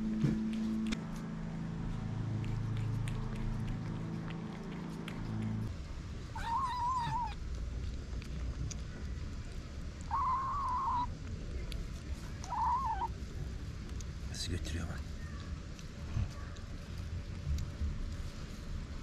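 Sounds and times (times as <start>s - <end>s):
kitten meowing: 6.4s - 7.4s, 10.1s - 11.1s, 12.4s - 13.1s.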